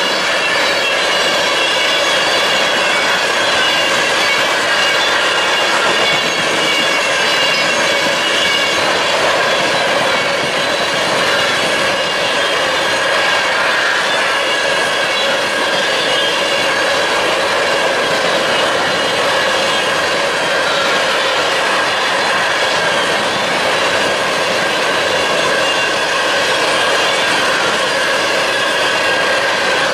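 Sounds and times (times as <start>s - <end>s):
steel wheels rushing on rail: 0.0s - 29.9s.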